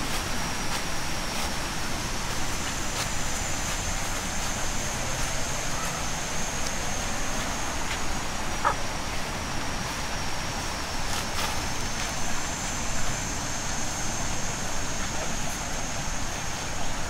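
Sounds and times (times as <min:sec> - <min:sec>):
high-pitched whine: 0:00.0 - 0:17.0.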